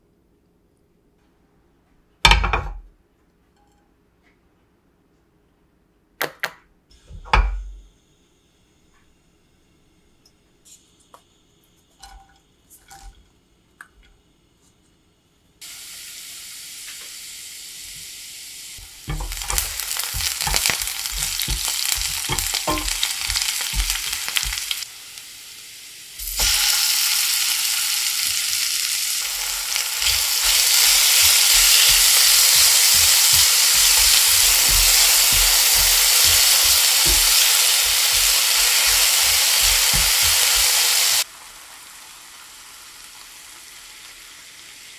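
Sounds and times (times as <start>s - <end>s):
oil sizzling in frying pan: 15.6s - 44.9s
spatula knocking against pan: 19.1s - 24.7s, 31.6s - 40.7s.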